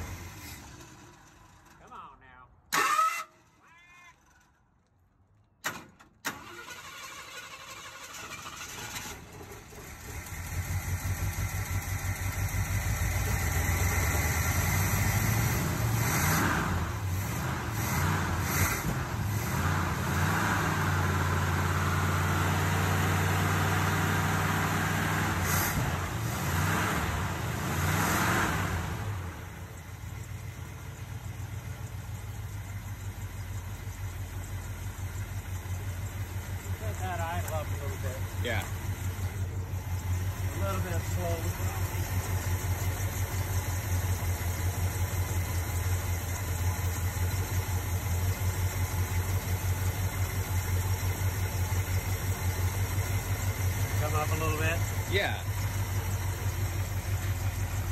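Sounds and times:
truck engine cranking and running: 0.0 - 57.9.

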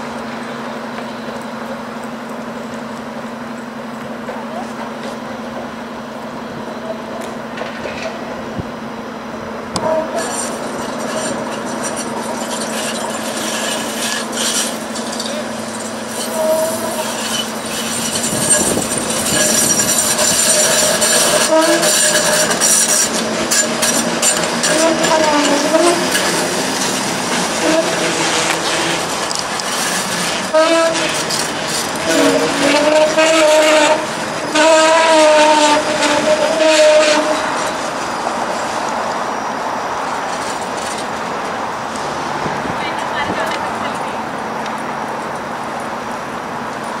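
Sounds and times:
streetcar approaching: 0.0 - 47.0
wheels squealing on curve: 9.8 - 41.2.

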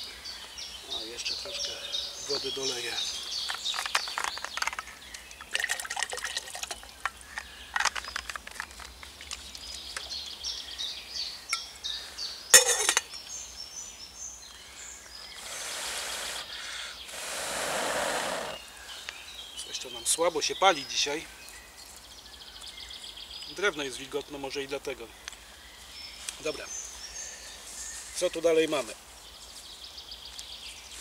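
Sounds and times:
canteen clicks and knocks: 3.4 - 4.9, 5.6 - 10.2
water pouring into metal pot: 5.5 - 6.9
steady rushing hiss: 14.7 - 19.8.

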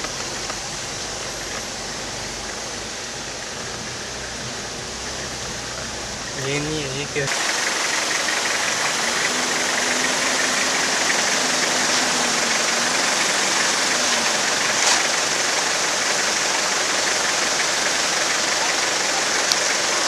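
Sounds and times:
steady rushing noise: 0.0 - 20.0
vehicle engine running: 0.0 - 20.0.

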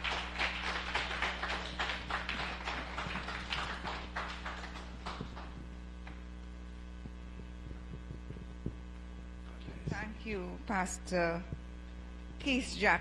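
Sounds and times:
people clapping: 0.0 - 6.2
mains hum: 0.0 - 13.0.

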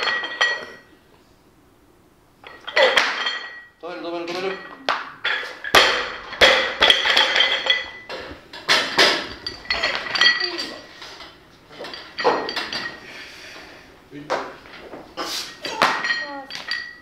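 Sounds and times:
metal bar and plates ringing: 0.0 - 0.9, 2.4 - 10.9, 11.8 - 13.0, 15.6 - 17.0
barbell plates clanking on platform: 4.3 - 10.8.

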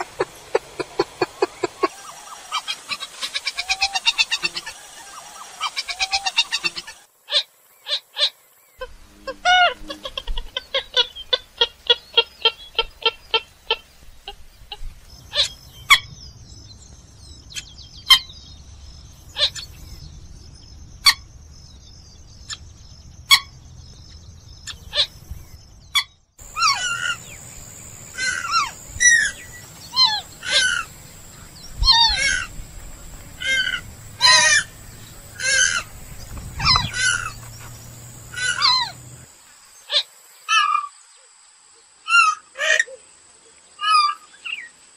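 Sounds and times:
bird clucking notes: 0.0 - 7.0, 8.8 - 16.2, 26.0 - 39.3
steady high whine: 26.4 - 39.5
bird calls sliding down in pitch: 33.4 - 39.0.

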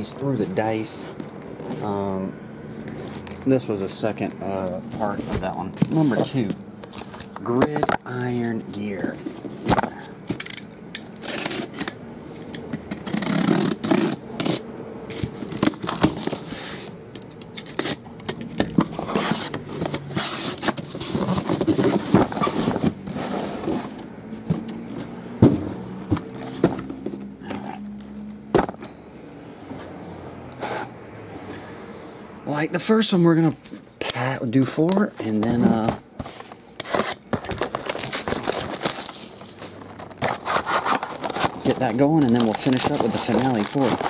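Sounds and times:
cardboard scraping and rustling: 0.0 - 2.2, 4.4 - 10.4, 12.9 - 27.6, 34.8 - 44.0
box cutter slitting tape: 10.3 - 12.0, 12.8 - 16.9, 17.5 - 24.0, 36.8 - 39.5, 40.2 - 44.0
boxes knocking on table: 25.4 - 27.2, 28.5 - 28.9.

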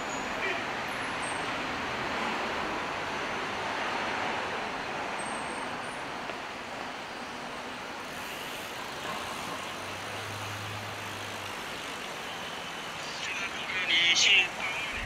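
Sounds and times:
cars passing: 0.0 - 15.0.

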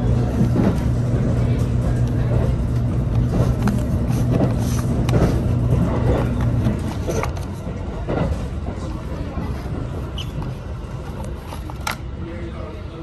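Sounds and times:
vehicle engine humming: 0.0 - 8.6.

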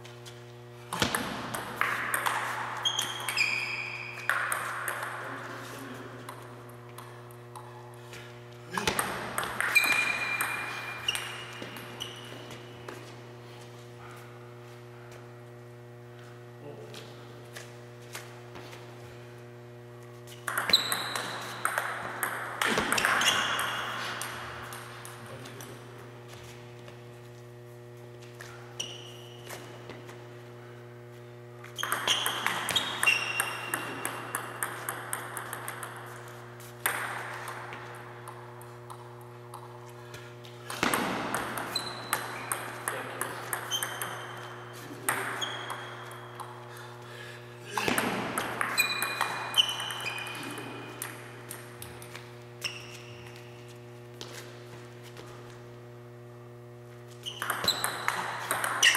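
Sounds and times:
low electrical hum: 0.0 - 58.9
table tennis ball clicks: 20.5 - 25.7, 31.8 - 39.7, 57.3 - 58.9.

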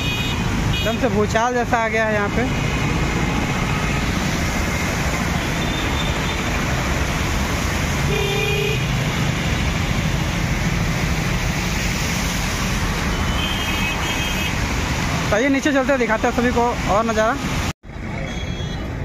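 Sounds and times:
road traffic noise: 0.0 - 19.0
vehicle horn toot: 8.1 - 9.0, 13.3 - 14.5.

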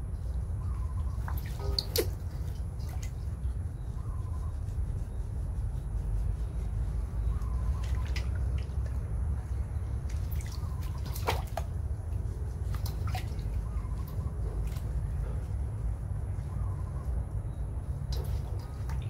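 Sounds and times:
steady low rumble: 0.0 - 19.0
water splashing in metal basin: 1.2 - 3.2, 10.1 - 11.7.

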